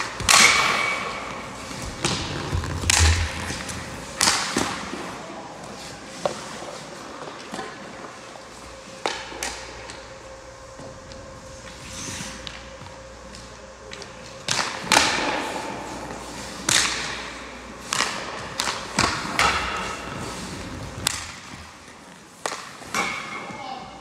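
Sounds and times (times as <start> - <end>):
hockey pucks cracking and thudding: 1.8 - 4.9.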